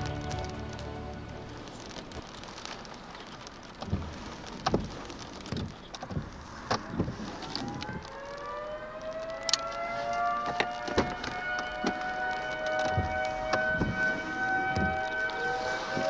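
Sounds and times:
warning siren winding up: 7.5 - 16.0.

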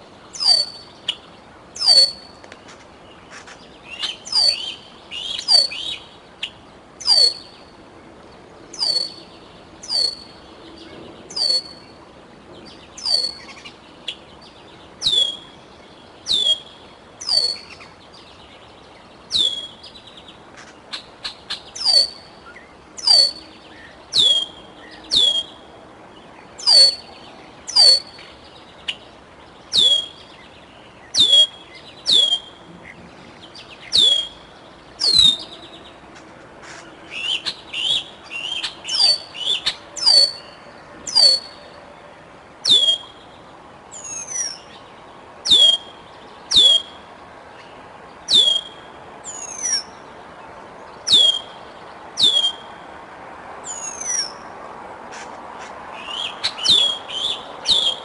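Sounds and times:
other birds calling: 0.0 - 7.9, 8.7 - 52.8, 53.6 - 54.5, 55.1 - 58.0
eagle piercing calls: 0.4 - 1.2, 1.8 - 2.4, 3.9 - 6.0, 7.0 - 7.6, 8.8 - 9.2, 9.8 - 10.4, 11.3 - 11.8, 13.0 - 13.7, 16.3 - 17.8, 20.9 - 22.2, 23.0 - 23.4, 26.6 - 27.0, 27.7 - 28.2, 29.7 - 30.2, 31.2 - 32.5, 33.9 - 34.4, 35.0 - 35.5, 36.7 - 41.6, 42.6 - 43.2, 45.4 - 47.0, 48.3 - 49.9, 51.1 - 51.5, 52.2 - 52.7, 56.0 - 58.0.

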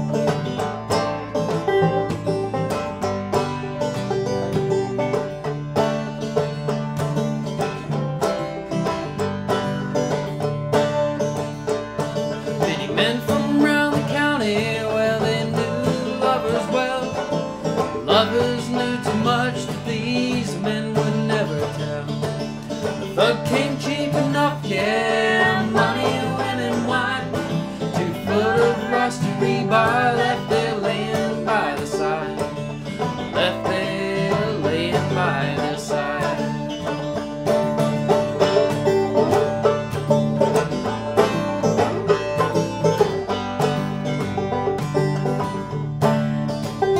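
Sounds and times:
banjo picking: 0.0 - 46.9
strummed acoustic guitar: 0.0 - 46.9
man and woman singing: 12.6 - 17.2, 18.0 - 22.0, 23.1 - 36.6.

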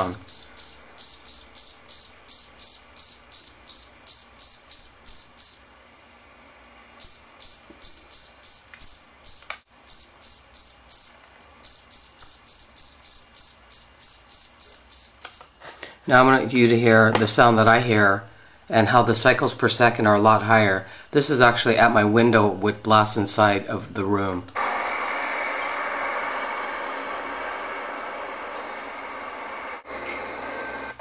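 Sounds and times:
cricket chirping: 0.0 - 5.7, 7.0 - 15.6, 24.7 - 30.6.

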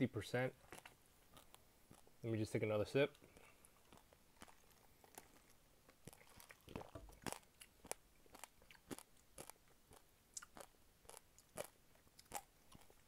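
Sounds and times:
person chewing crunchy seeds: 0.6 - 2.2, 3.1 - 13.0.

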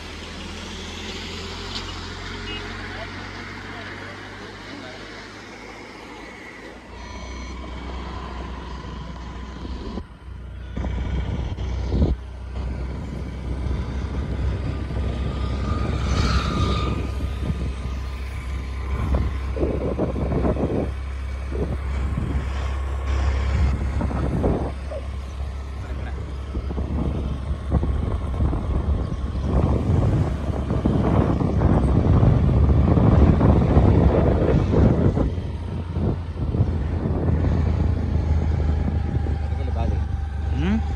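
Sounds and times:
engine and tyres rumbling: 0.0 - 40.9
traffic noise: 0.0 - 40.9
wind noise: 7.4 - 40.9.

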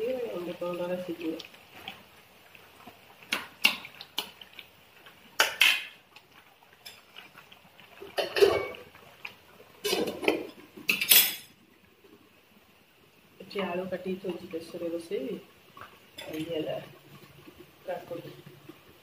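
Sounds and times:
dishes and utensils clattering: 8.1 - 8.9, 9.8 - 11.5.

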